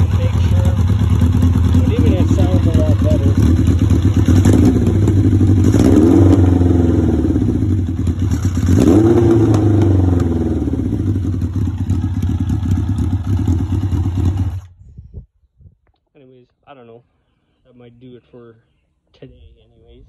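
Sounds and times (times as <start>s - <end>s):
motorcycle engine revving: 0.0s - 14.8s.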